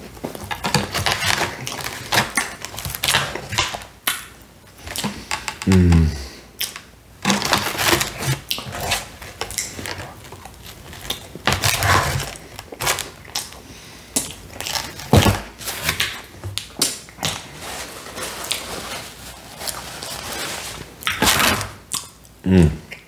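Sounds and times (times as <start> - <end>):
paper napkin crinkling: 7.3 - 13.5, 17.4 - 21.7
wet chewing and lip smacking: 21.9 - 23.0.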